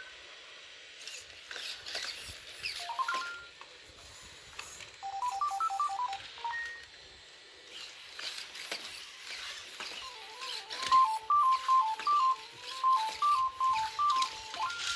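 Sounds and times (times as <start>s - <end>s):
robot dog electronic beeping tune: 2.8s - 3.5s, 5.0s - 6.8s, 10.1s - 14.9s.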